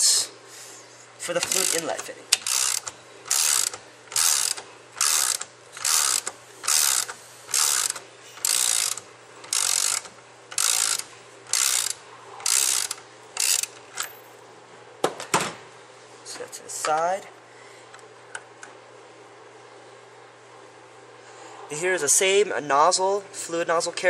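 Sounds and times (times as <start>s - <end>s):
socket ratchet clicking: 1.4s - 14.2s.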